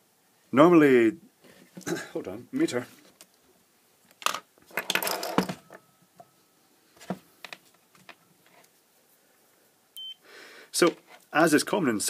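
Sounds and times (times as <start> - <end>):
tools knocking and rattling on bench: 4.2 - 5.8.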